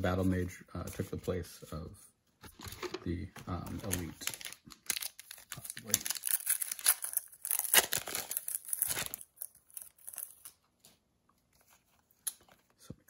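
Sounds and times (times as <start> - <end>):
foil wrapper crinkling and tearing: 3.8 - 10.9.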